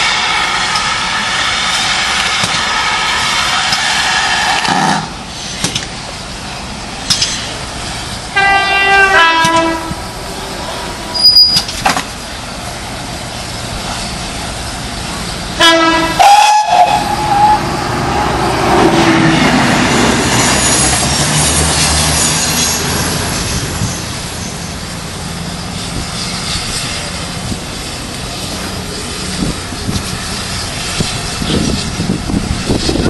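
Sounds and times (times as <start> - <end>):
steam locomotive whistle blowing: 8.3 - 10.0, 11.1 - 11.6, 15.5 - 18.5
steady rushing noise: 16.8 - 33.0.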